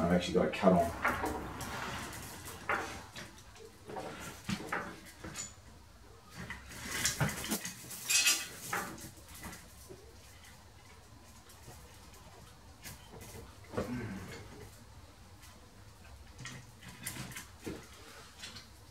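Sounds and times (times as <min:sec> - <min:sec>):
metal clinks and knocks: 0:00.8 - 0:11.5.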